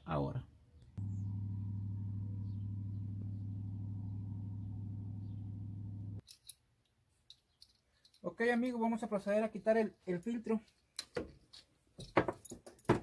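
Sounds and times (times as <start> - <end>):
engine idling: 1.0 - 6.2.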